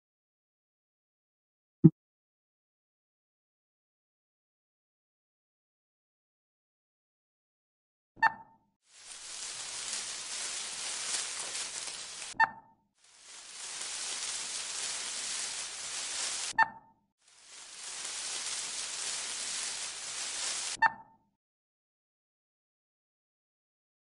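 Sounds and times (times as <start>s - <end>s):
electronic static hiss: 9.0s - 12.4s, 13.1s - 16.5s, 17.3s - 20.8s.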